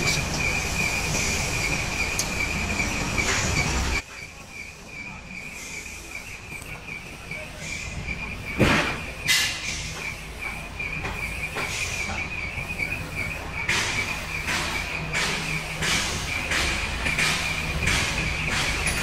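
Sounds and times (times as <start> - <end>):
hydraulic crane whine: 0.0 - 19.0
short hissing squeals: 4.7 - 16.5.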